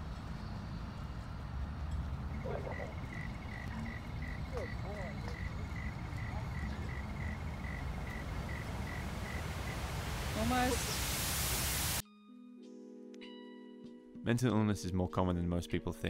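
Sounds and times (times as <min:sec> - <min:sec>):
low wind rumble: 0:00.0 - 0:12.0.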